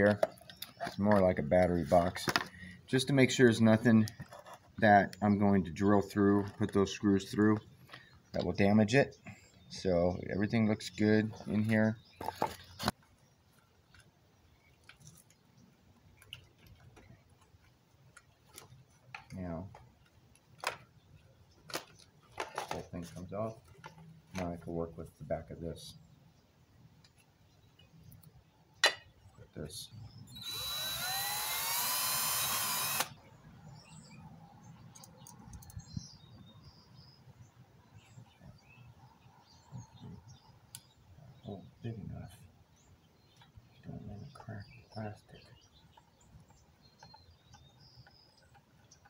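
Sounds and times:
small clicks and rustles of handling: 0:14.8 - 0:15.4, 0:16.1 - 0:20.9, 0:21.6 - 0:24.7
cordless drill whining: 0:30.3 - 0:33.2.

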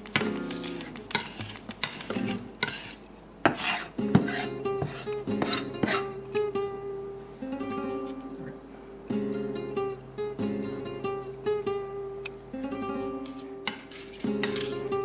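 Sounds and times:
guitar music: 0:00.0 - 0:01.1, 0:04.0 - 0:15.0
knife scraping on cutting board: 0:00.2 - 0:06.1, 0:13.2 - 0:14.9.

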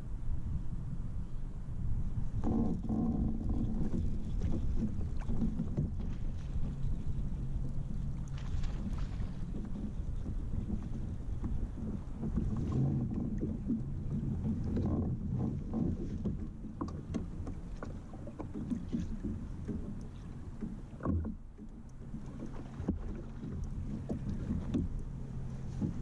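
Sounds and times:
wind on microphone: 0:00.0 - 0:21.4, 0:22.0 - 0:26.0
steady low rumble: 0:00.0 - 0:26.0
water lapping against hull: 0:00.0 - 0:26.0.

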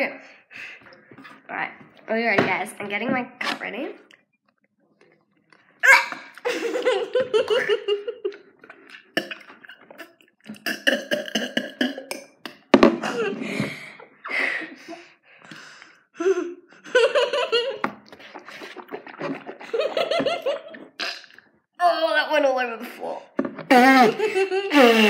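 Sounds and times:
girls giggling: 0:05.9 - 0:08.5, 0:13.0 - 0:15.1, 0:16.3 - 0:17.8, 0:19.6 - 0:21.0, 0:23.7 - 0:25.0
spitting into glass: 0:08.6 - 0:12.5, 0:20.7 - 0:21.5.

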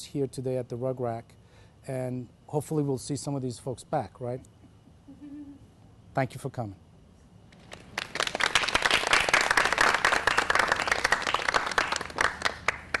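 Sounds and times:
audience applauding: 0:07.7 - 0:13.0.

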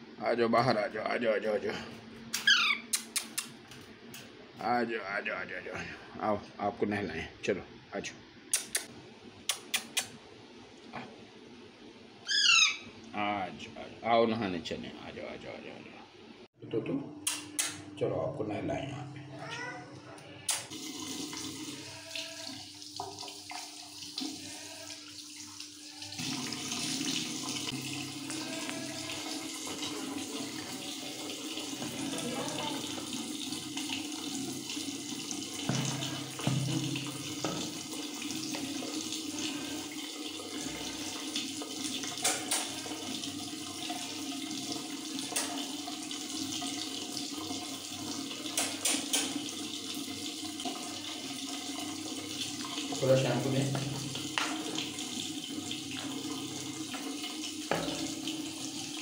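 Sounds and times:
tap running into washbasin: 0:20.5 - 0:59.0.

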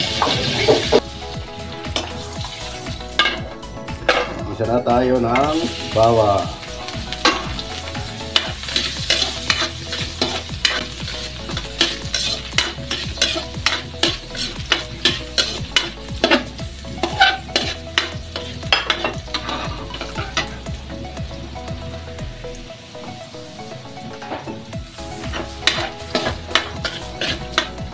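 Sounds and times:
garlic sizzling in hot oil: 0:00.0 - 0:27.9
metal ladle scraping wok: 0:06.8 - 0:20.6, 0:24.2 - 0:27.8.

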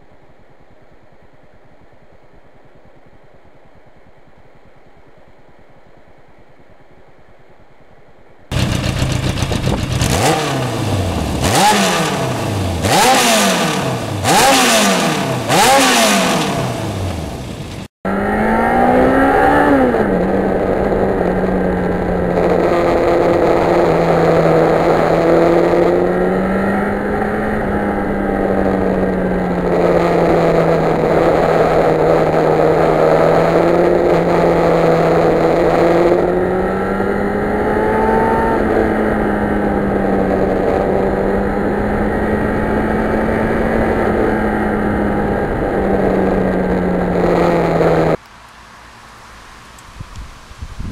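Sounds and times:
motorcycle engine accelerating: 0:08.5 - 0:48.2.

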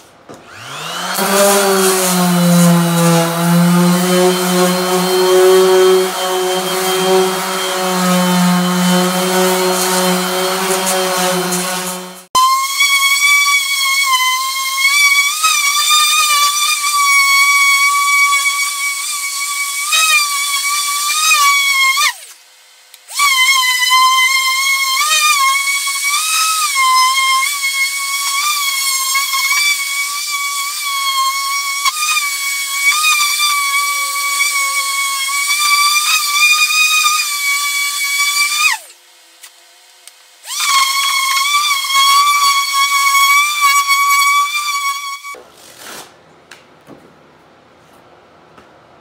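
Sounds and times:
sander high whine: 0:00.3 - 0:22.3, 0:23.2 - 0:39.0.

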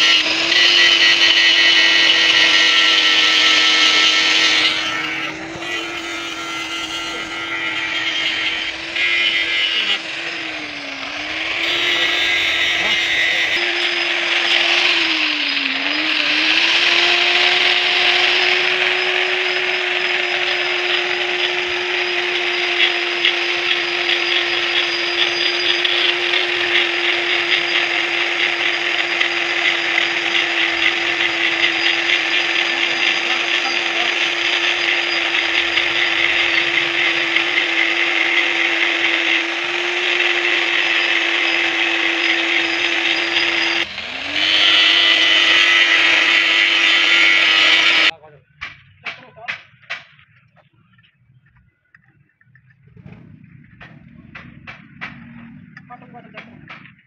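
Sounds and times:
motor whine: 0:00.0 - 0:48.1
gritty metal cutting noise: 0:00.0 - 0:50.6, 0:52.0 - 0:57.0.

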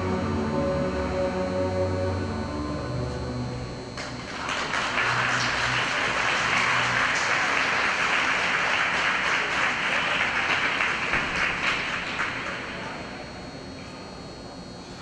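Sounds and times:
low program music notes: 0:00.0 - 0:08.1
audience applauding: 0:04.0 - 0:13.2.

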